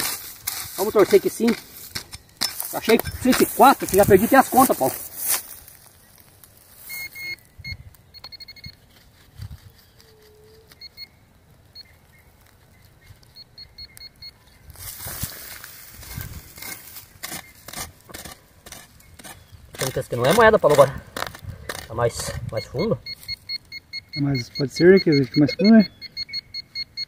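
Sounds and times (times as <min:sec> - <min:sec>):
digging scraping and knocks in soil: 0:00.0 - 0:07.5, 0:08.1 - 0:11.2, 0:11.8 - 0:23.6
metal detector beeps: 0:00.8 - 0:05.0, 0:06.8 - 0:09.0, 0:10.1 - 0:11.2, 0:13.2 - 0:14.6, 0:21.8 - 0:27.0.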